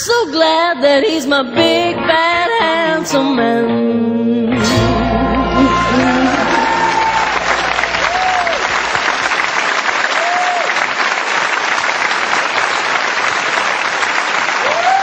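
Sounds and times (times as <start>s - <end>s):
short cheers: 4.6s - 9.0s, 10.0s - 10.9s, 14.6s - 15.0s
audience clapping: 4.7s - 15.0s.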